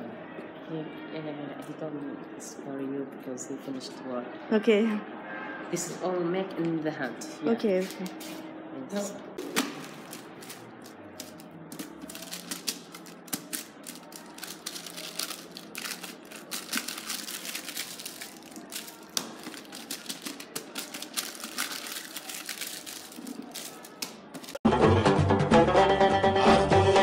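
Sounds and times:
paper wrappers crinkling: 0:09.4 - 0:24.6.

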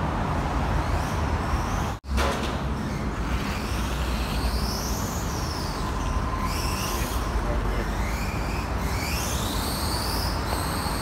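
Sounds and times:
rc truck motor whining: 0:02.8 - 0:11.0.

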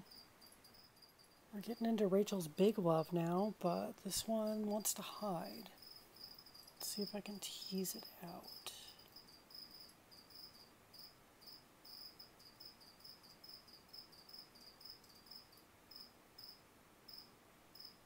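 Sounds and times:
cricket chirping: 0:00.0 - 0:01.9, 0:05.5 - 0:18.0.

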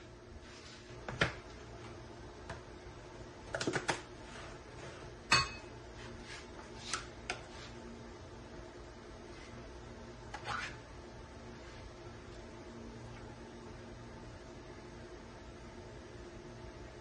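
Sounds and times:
dishes and utensils clinking: 0:05.3 - 0:05.7.

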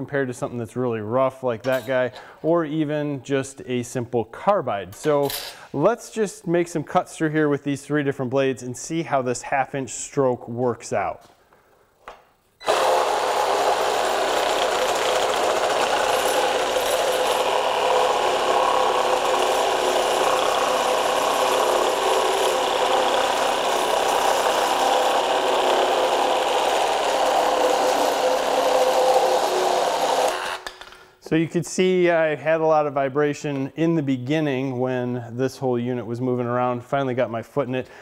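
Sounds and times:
reciprocating saw cutting wood: 0:12.6 - 0:30.7.

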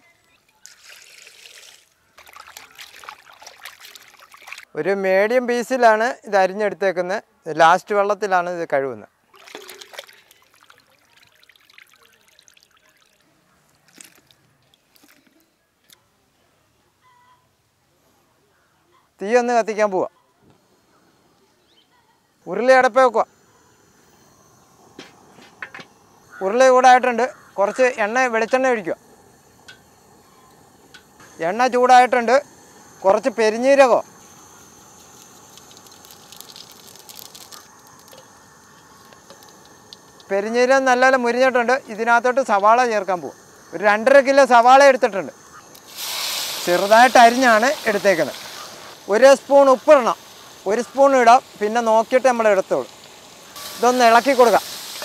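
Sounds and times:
seeds sizzling in hot oil: 0:00.2 - 0:04.7, 0:09.3 - 0:15.2, 0:21.3 - 0:55.0
water dripping and trickling: 0:00.6 - 0:04.7, 0:09.3 - 0:15.2, 0:35.4 - 0:38.2.

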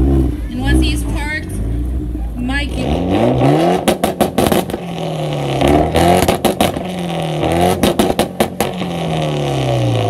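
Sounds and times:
car engine revving: 0:00.0 - 0:10.0
exhaust pops: 0:03.7 - 0:09.5.

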